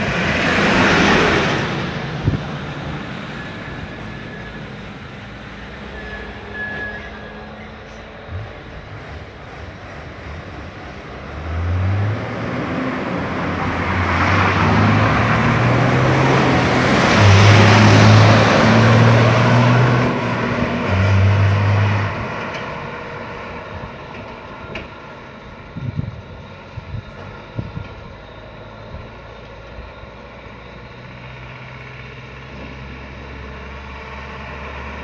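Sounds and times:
car driving past: 10.4 - 23.8.

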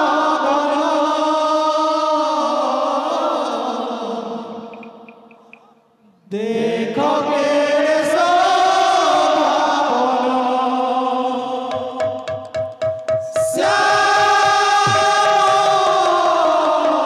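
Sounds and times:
people singing devotional chant: 0.0 - 17.0
barrel drum strokes: 12.8 - 15.9.

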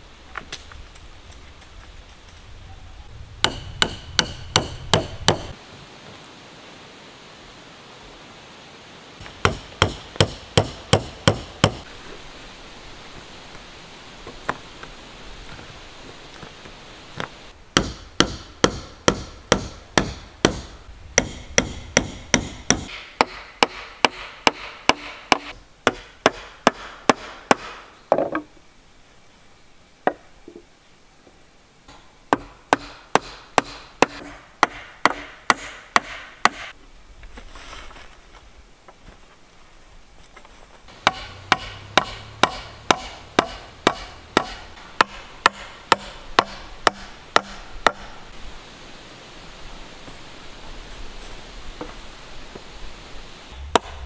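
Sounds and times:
hammer blows on wood: 3.4 - 5.6, 9.3 - 11.9, 17.8 - 27.8, 40.9 - 48.2.

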